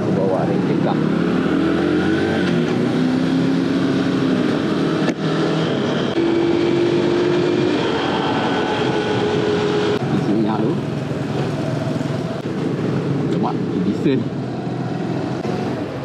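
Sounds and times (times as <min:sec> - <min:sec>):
wind noise on microphone: 0:04.0 - 0:10.3.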